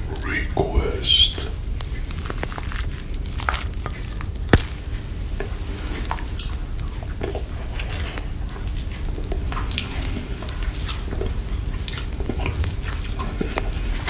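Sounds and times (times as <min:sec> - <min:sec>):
wet mouth licking and sucking: 0:02.0 - 0:02.8.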